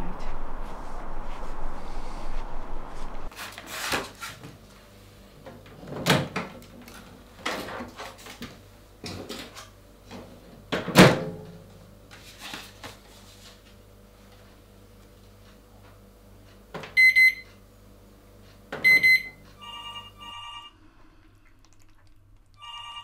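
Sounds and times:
faint low hum: 0.0s - 3.3s.

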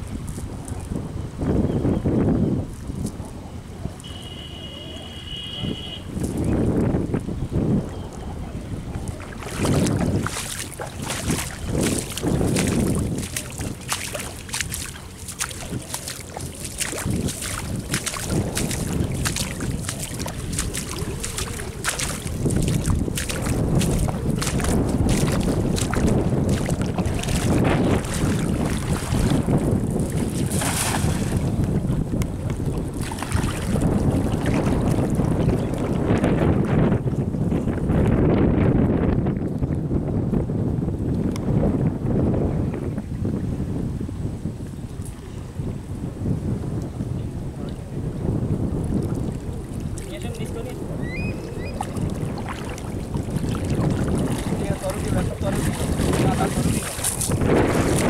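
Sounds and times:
wind buffeting microphone: 0.0s - 58.0s
cast net splashing on water: 9.1s - 31.6s, 32.9s - 35.4s, 51.8s - 58.0s.

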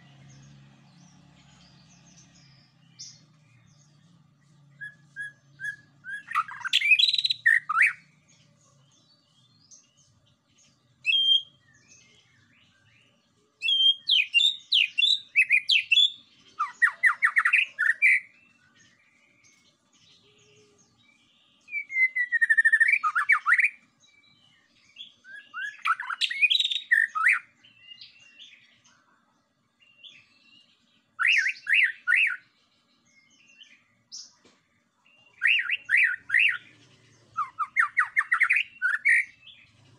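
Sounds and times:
songbird whistles and trills: 4.5s - 8.1s, 11.0s - 12.9s, 13.6s - 19.1s, 20.2s - 28.6s, 30.0s - 32.5s, 35.2s - 39.9s.

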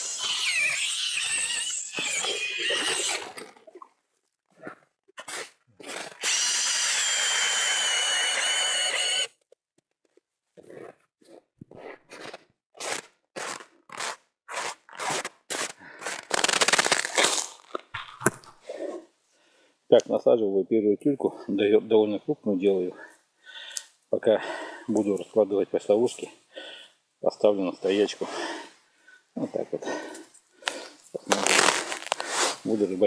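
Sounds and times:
power drill ice auger whine: 6.0s - 9.3s.

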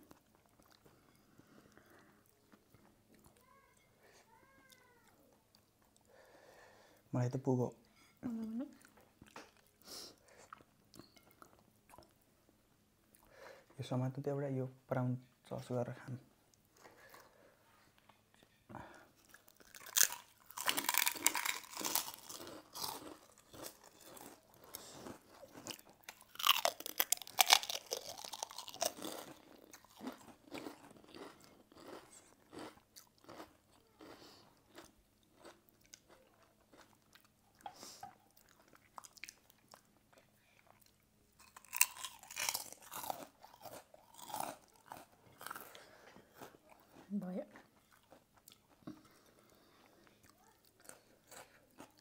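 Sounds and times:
quiet chewing: 0.0s - 6.2s, 16.5s - 52.0s
people crunching crackers: 18.8s - 52.0s.

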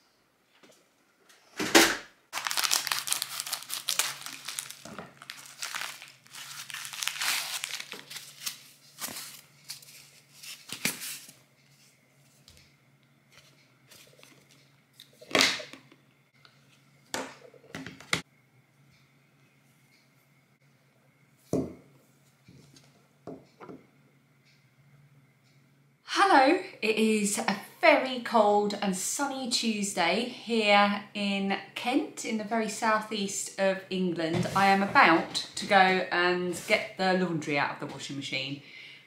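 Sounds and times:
paper crinkling and tearing: 2.4s - 11.4s.

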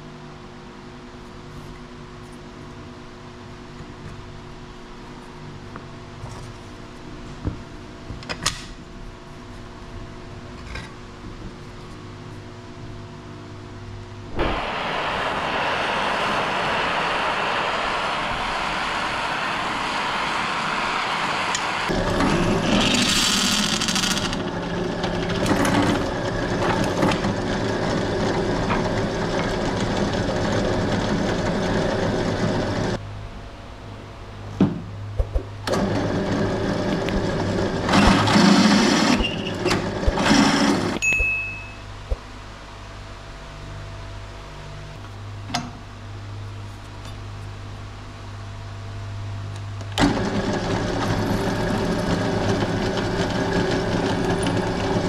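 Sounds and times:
drill press drilling steel: 16.5s - 33.0s, 35.7s - 41.0s, 50.0s - 55.0s.

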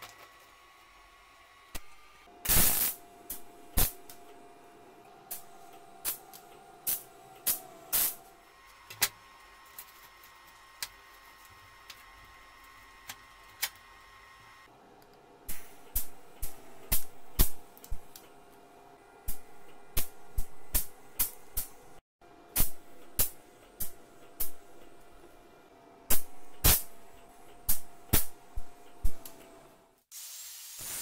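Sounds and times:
welding arc crackling: 2.4s - 4.1s, 5.3s - 8.3s, 30.2s - 31.0s.

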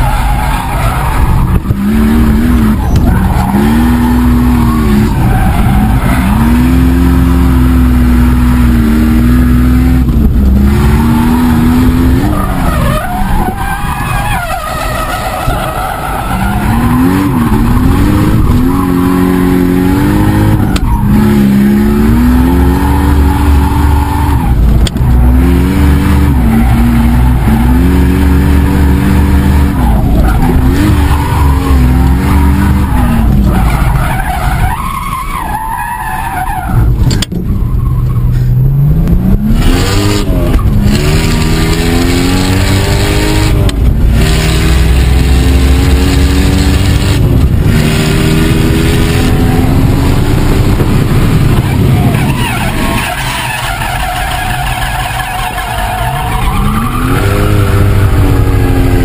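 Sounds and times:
car engine revving hard: 0.7s - 13.6s, 16.2s - 34.7s, 38.6s - 59.0s
tyres squealing: 51.5s - 59.0s.

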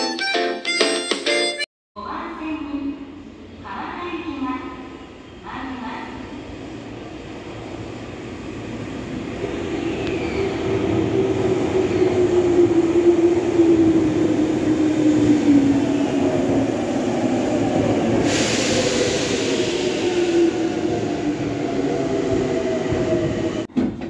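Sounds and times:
electric train passing: 6.5s - 23.7s
air hiss: 18.2s - 20.6s.

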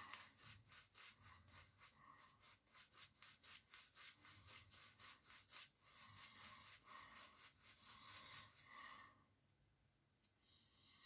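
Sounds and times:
shaving brush swishing on face: 0.0s - 8.7s.

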